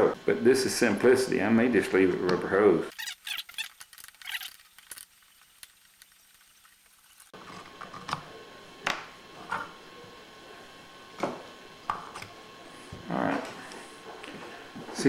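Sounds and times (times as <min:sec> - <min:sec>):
small metal parts scraping: 0:02.9 - 0:07.2.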